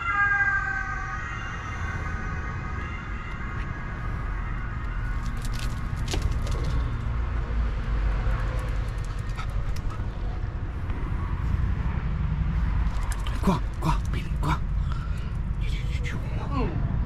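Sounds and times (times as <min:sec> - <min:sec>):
steady low rumble: 0:01.8 - 0:17.0
dog moving on concrete: 0:05.1 - 0:07.0.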